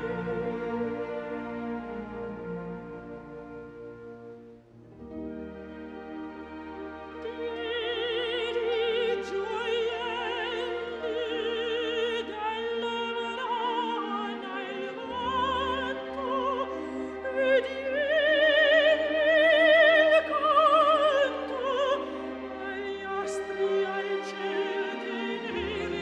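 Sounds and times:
classical accompaniment: 0.0s - 26.0s
operatic voice singing: 7.3s - 26.0s.

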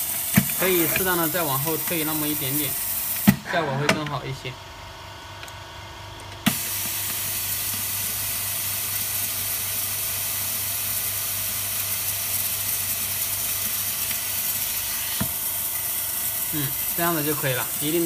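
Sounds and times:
vacuum suction air hiss: 0.0s - 3.5s, 6.5s - 18.0s
low machine hum: 0.0s - 13.8s.

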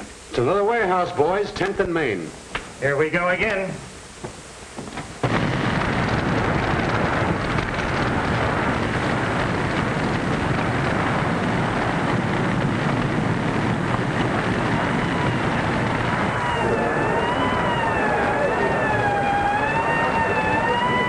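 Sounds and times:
fire roaring: 0.0s - 21.0s
faint siren wailing: 14.4s - 21.0s.

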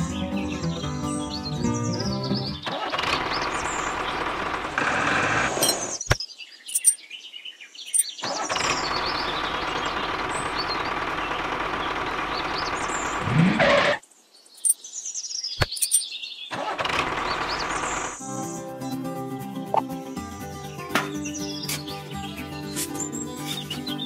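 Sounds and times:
birds chirping: 0.0s - 24.0s
tractor engine running: 2.6s - 6.0s, 8.2s - 14.0s, 16.5s - 18.2s.

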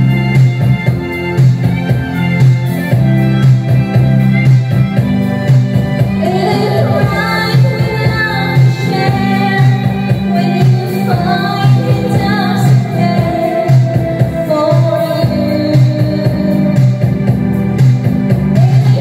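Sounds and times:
backing track music: 0.0s - 19.0s
woman singing karaoke: 6.0s - 17.6s, 18.4s - 19.0s.

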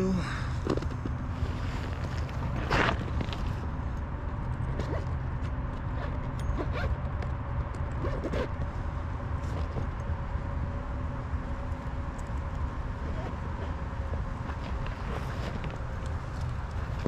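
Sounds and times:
faint hum: 0.0s - 17.0s
light clicks and rustles: 14.4s - 17.0s.

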